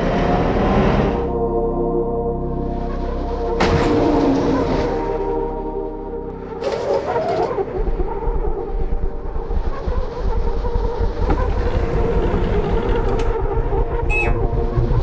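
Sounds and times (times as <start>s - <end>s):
heavy vehicle rumbling: 11.1s - 13.5s.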